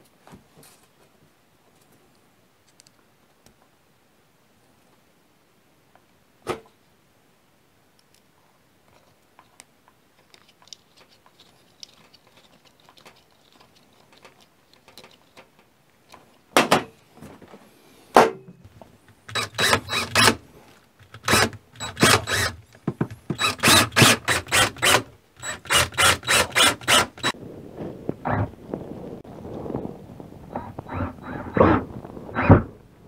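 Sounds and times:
clicks of small parts handled: 8.9s - 16.3s
cordless drill driving screws: 19.2s - 27.4s.

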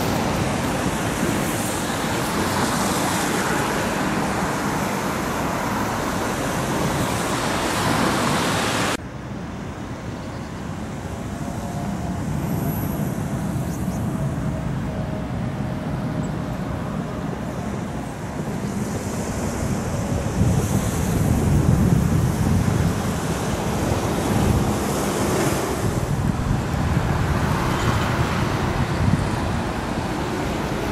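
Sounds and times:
traffic rushing: 0.0s - 30.9s
faint high whining tones: 9.8s - 18.7s.

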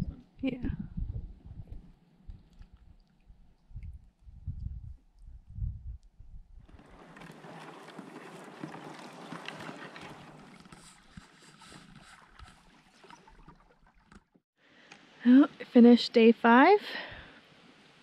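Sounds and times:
wind rumble on microphone: 0.0s - 7.0s
water swishing along a canoe: 6.7s - 14.4s.

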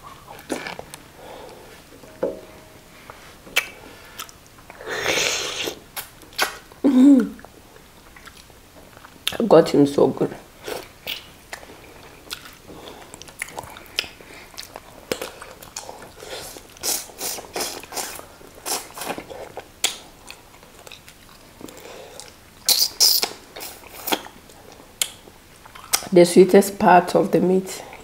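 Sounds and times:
people chewing chicken: 10.6s - 26.1s.

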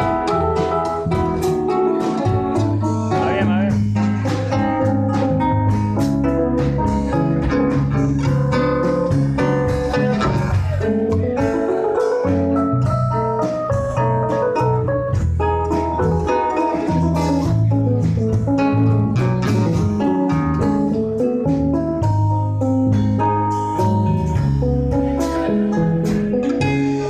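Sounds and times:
acoustic guitars strumming: 0.0s - 27.0s.

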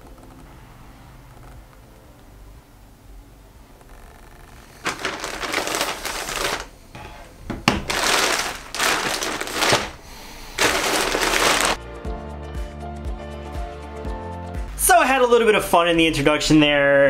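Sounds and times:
plastic bag crinkling: 4.8s - 6.8s, 7.7s - 11.8s.

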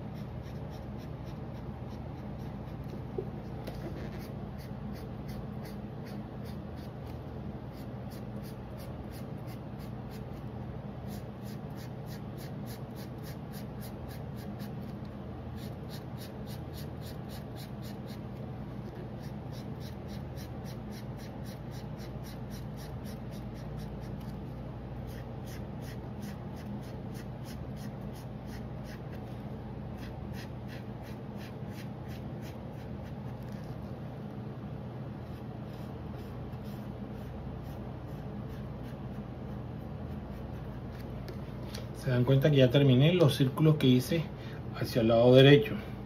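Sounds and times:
pen scribbling on paper: 0.0s - 3.0s, 3.7s - 10.4s, 11.0s - 14.9s, 15.6s - 18.3s, 19.0s - 24.3s, 25.1s - 29.2s, 30.0s - 33.7s, 35.2s - 39.2s
steady low hum: 0.0s - 46.0s.

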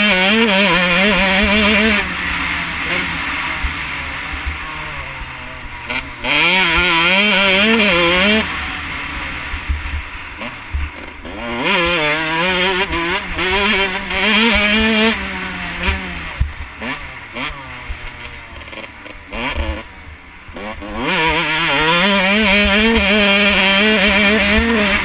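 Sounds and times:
motocross bike engine revving: 0.0s - 25.0s.

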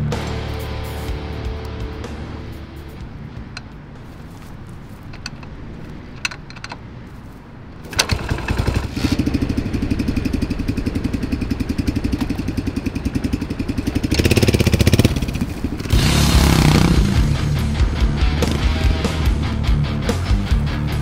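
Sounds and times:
kick-start clicks: 7.8s - 9.1s
motorcycle engine revving: 7.8s - 19.6s.

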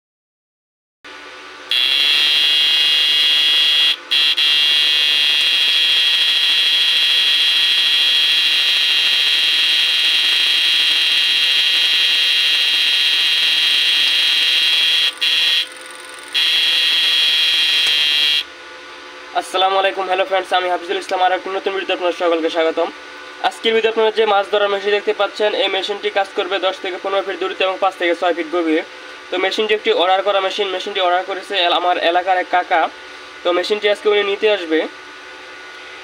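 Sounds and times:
inverter whining at high pitch: 1.6s - 22.9s.

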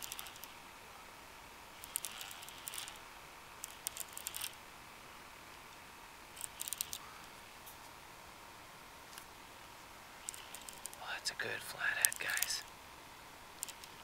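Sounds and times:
fishing reel clicking: 0.0s - 0.6s, 1.8s - 3.0s, 3.6s - 4.6s, 6.4s - 7.0s, 10.2s - 11.0s, 12.1s - 12.5s
faint hiss: 0.0s - 14.0s.

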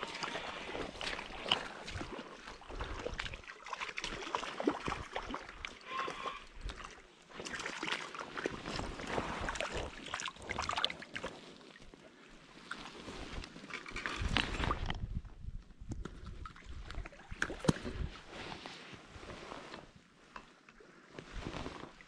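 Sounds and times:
water lapping at shore: 0.0s - 15.0s
wind on microphone: 14.2s - 18.3s.

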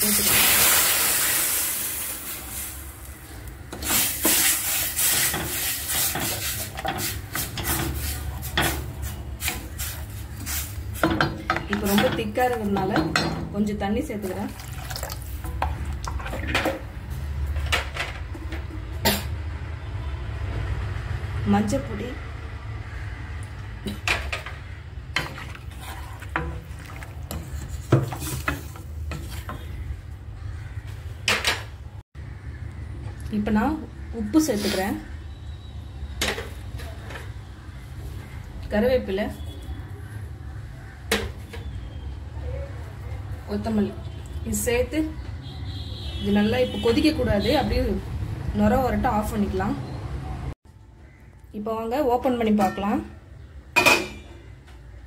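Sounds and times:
liquid hissing in hot pan: 0.0s - 3.1s, 3.8s - 7.2s
spatula scraping a pan: 3.8s - 13.1s, 25.2s - 29.9s.

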